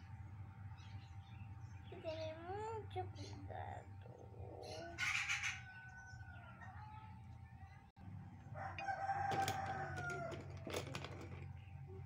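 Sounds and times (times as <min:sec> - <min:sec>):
rooster crowing: 0:05.3 - 0:06.9, 0:08.5 - 0:10.5.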